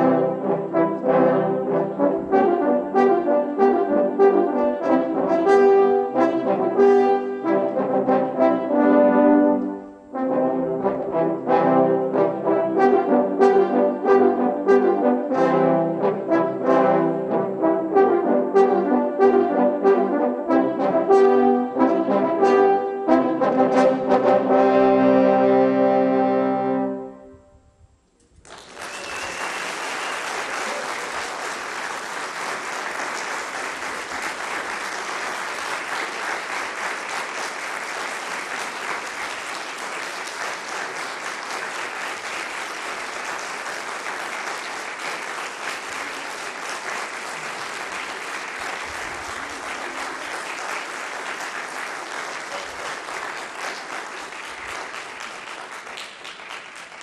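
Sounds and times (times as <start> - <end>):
audience applauding: 28.4 - 57.0.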